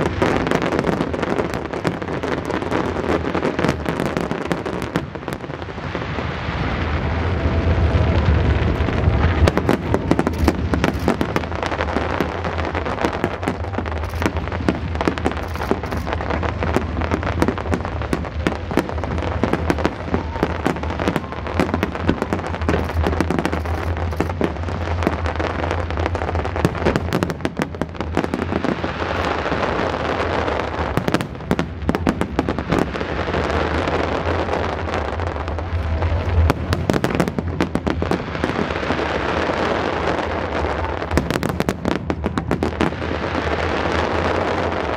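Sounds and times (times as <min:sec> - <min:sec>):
fireworks bangs and crackling: 0:00.0 - 0:44.9
low rumble: 0:01.2 - 0:44.9.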